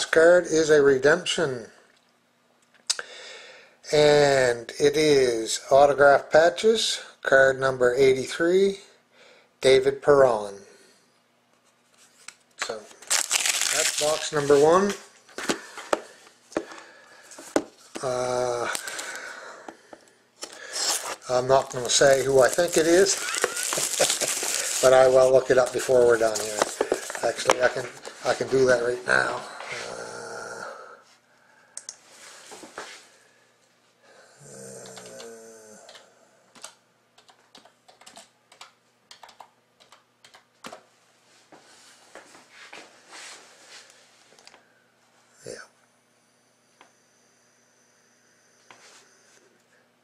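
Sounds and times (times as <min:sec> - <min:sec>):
man humming: 0:29.4 - 0:31.0, 0:34.2 - 0:36.2.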